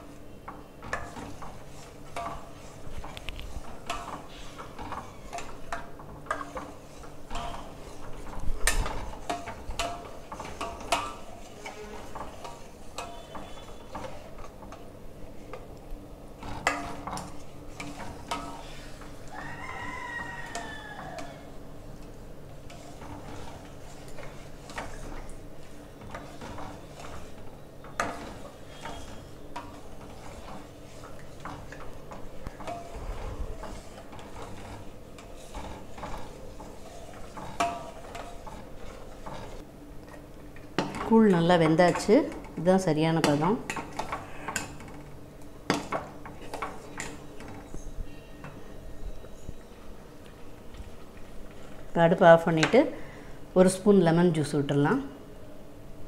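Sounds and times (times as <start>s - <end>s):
ladle scraping a metal pot: 0.8s - 15.6s, 16.4s - 39.6s
distant rising-and-falling call: 19.3s - 21.5s.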